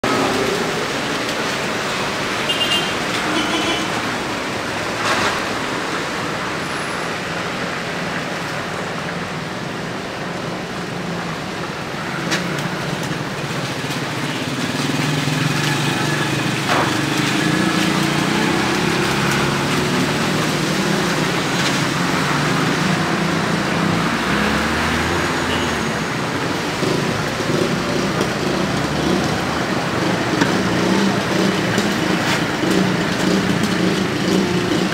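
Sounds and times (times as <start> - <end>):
car and van engines: 0.0 - 34.9
tyres on wet road: 0.0 - 34.9
motorcycle engine: 26.6 - 34.9.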